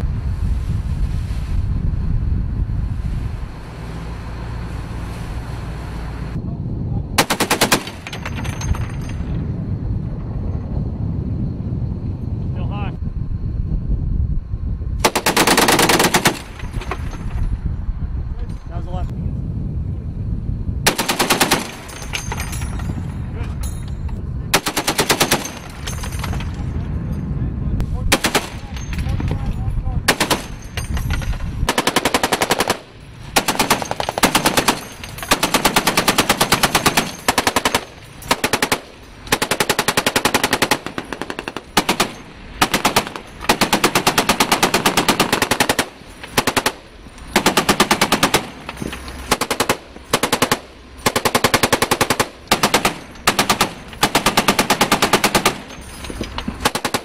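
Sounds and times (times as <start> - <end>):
heavy machine gun bursts: 7.2 - 9.1, 15.0 - 17.2, 20.9 - 22.8, 24.5 - 26.5, 28.1 - 29.0, 30.1 - 57.0.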